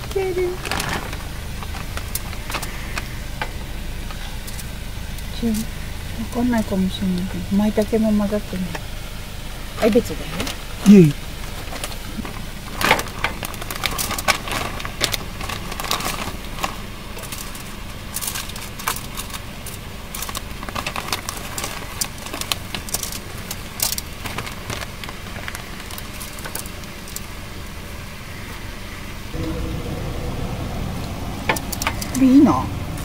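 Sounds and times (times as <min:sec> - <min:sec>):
plastic bag crinkling: 0:00.0 - 0:03.1, 0:11.6 - 0:27.4
steady low hum: 0:00.0 - 0:33.0.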